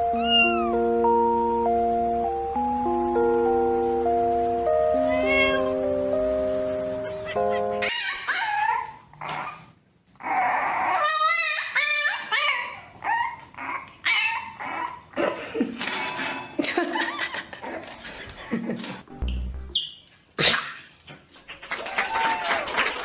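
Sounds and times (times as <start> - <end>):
puppy yapping and whining: 0.1 - 0.8, 7.0 - 15.1.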